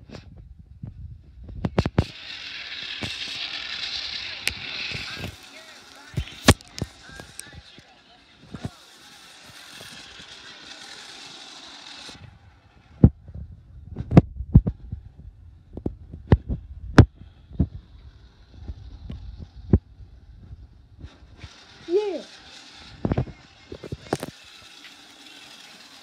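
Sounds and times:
low rumble: 12.3 - 21.4.

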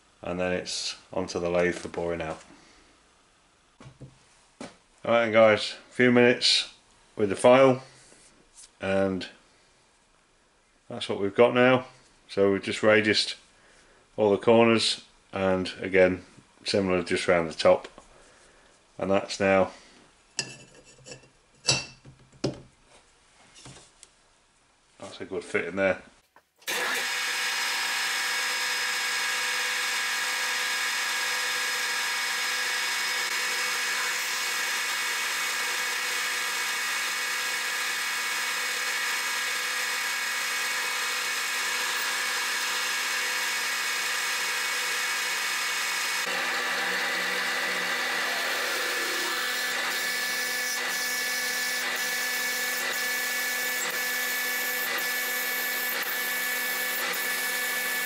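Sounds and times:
lathe drilling whine: 26.7 - 58.0.

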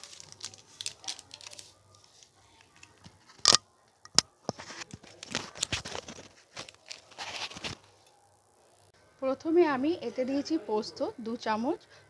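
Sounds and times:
rustling and scraping: 0.0 - 8.0.

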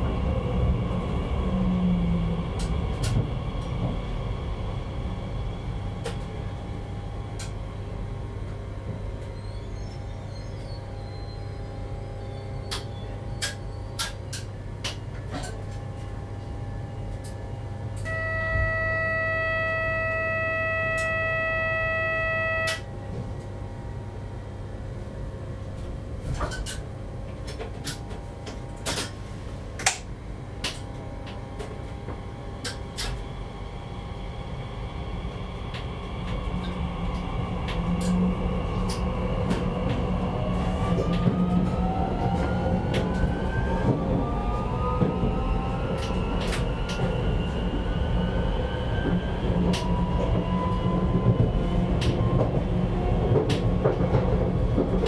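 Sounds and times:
train equipment humming: 0.0 - 55.0
electronic warning tone: 18.0 - 22.9.

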